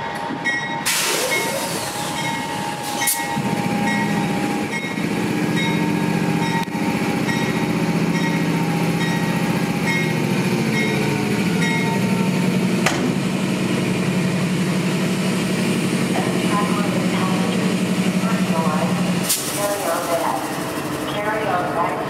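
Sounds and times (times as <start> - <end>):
diesel locomotive engine droning: 0.0 - 22.0
locomotive bell ringing: 0.4 - 12.4
sharp knocks: 12.8 - 13.1.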